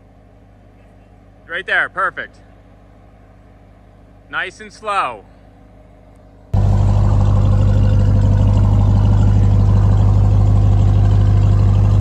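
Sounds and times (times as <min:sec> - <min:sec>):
vehicle engine droning: 0:00.0 - 0:12.0.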